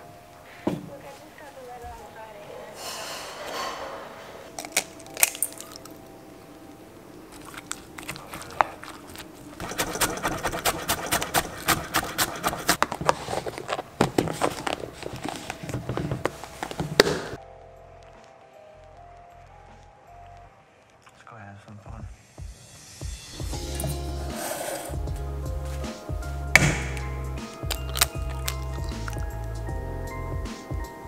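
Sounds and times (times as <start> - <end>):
knife chopping on wooden board: 9.6 - 13.1, 26.6 - 27.0
fork clinking ceramic bowl: 27.6 - 29.4.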